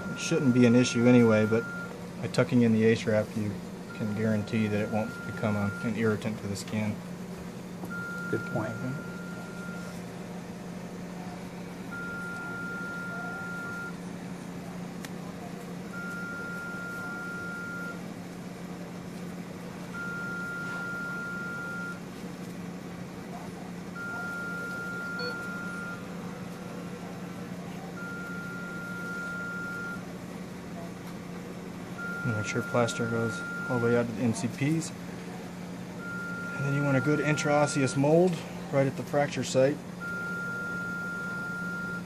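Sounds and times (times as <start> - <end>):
electronic alarm beeping: 0.0 - 1.9, 3.9 - 6.0, 7.9 - 9.9, 11.9 - 14.0, 15.9 - 18.0, 20.0 - 22.0, 24.0 - 26.1, 28.0 - 30.0, 32.0 - 34.1, 36.0 - 38.3, 40.0 - 42.0.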